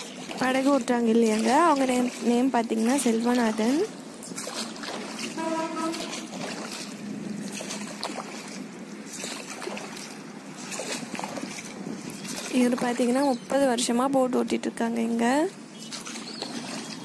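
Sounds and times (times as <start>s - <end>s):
water splashing around rowing boat: 0.0s - 17.0s
brief steady tone: 5.4s - 6.0s.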